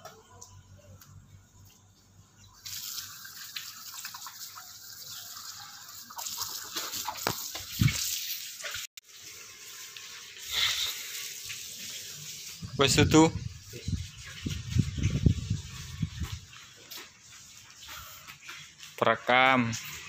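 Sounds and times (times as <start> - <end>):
water running from tap: 2.6 - 18.2.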